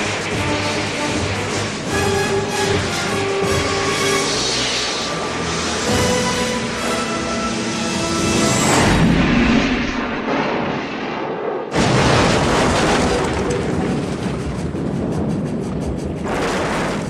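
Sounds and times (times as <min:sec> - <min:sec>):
rushing noise: 0:00.0 - 0:17.0
loud explosion blast: 0:08.7 - 0:17.0
heavy crash of wreckage: 0:11.8 - 0:14.9.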